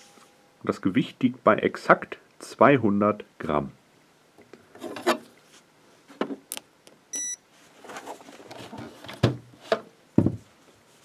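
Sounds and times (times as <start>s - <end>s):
electronic scale beep: 7.1s - 7.4s.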